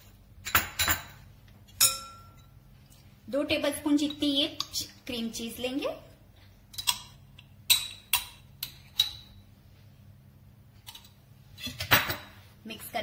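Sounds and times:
metal spoon clinking on glass: 1.8s - 2.5s.

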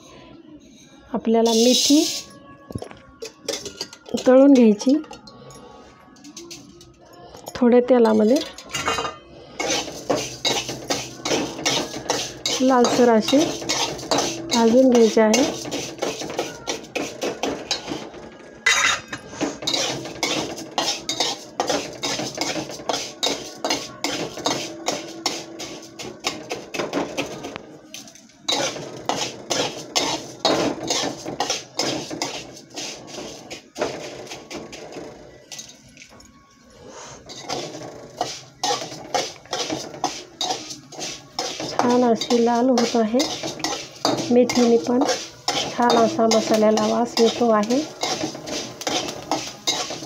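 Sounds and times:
spatula scraping steel pan: 8.5s - 27.4s, 28.5s - 35.6s, 37.1s - 50.0s.

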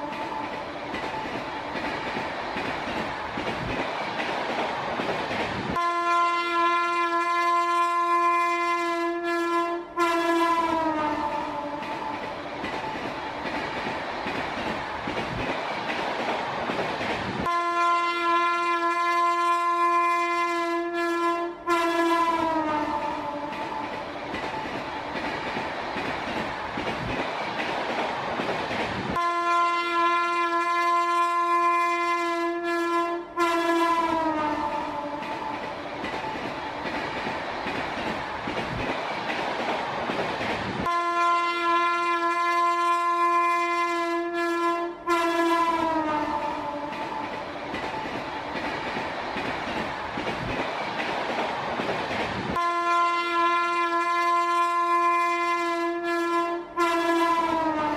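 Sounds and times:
passing train rumble and clatter: 0.0s - 57.9s
train horn blasts: 5.7s - 11.8s, 17.4s - 23.5s, 29.1s - 35.2s, 40.8s - 46.9s, 52.5s - 57.9s.

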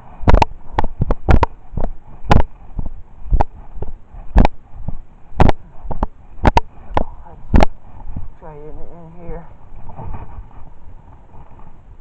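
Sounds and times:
sharp knocks and thumps: 0.2s - 8.3s.

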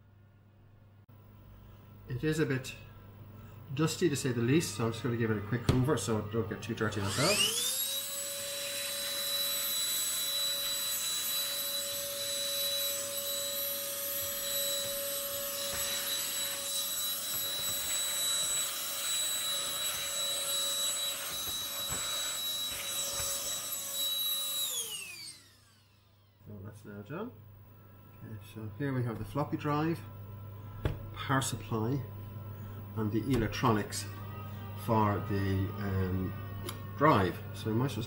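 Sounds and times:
handheld vacuum whining: 4.7s - 26.4s, 33.3s - 37.8s
vacuum motor spinning down: 6.8s - 26.4s.

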